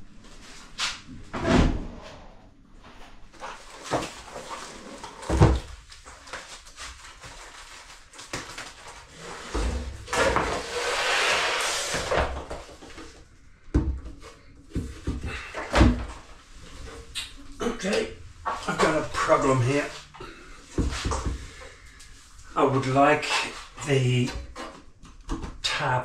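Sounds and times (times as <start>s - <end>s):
cardboard and plastic rustling: 3.3s - 13.3s.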